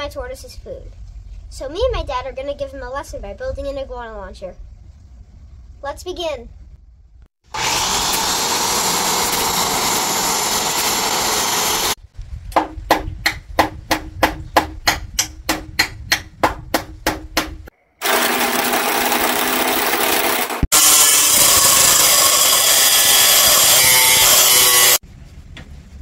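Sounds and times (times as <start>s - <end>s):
miter saw cutting wood: 7.5s - 12.0s, 18.0s - 25.0s
power tool running: 7.5s - 12.0s, 18.0s - 25.0s
hammer striking nails: 12.6s - 20.7s.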